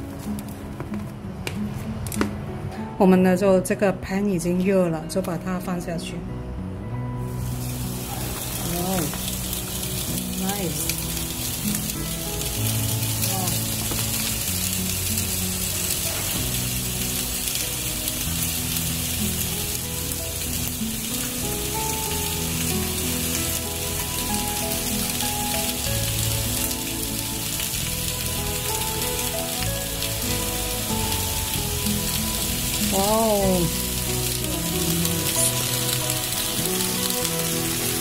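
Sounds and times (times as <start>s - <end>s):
background music melody: 0.0s - 38.0s
steaks sizzling in grill pan: 7.2s - 38.0s.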